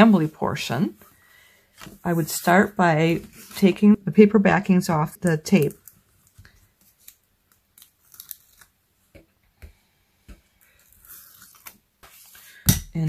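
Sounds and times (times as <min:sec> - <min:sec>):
card rustling: 0:05.3 - 0:08.8
tape backing being peeled: 0:05.6 - 0:08.8, 0:10.8 - 0:12.4.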